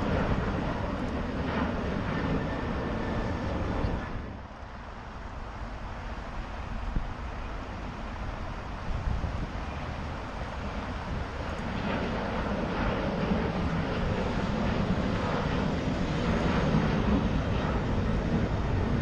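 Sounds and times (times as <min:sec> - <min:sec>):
distant jet airliner rumble: 0:00.0 - 0:19.0
wind on microphone: 0:06.1 - 0:19.0.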